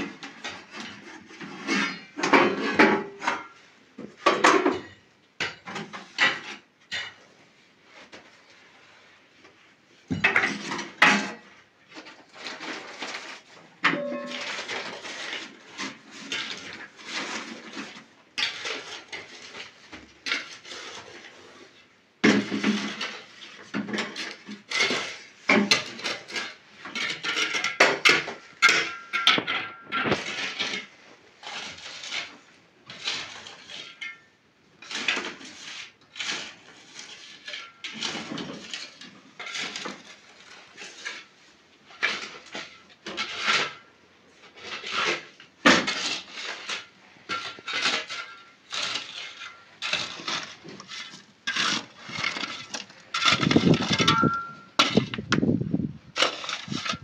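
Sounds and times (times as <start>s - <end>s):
kitchenware clinking and clattering: 0.0s - 7.3s, 10.1s - 11.6s, 12.5s - 20.6s, 22.3s - 31.0s, 44.8s - 55.2s.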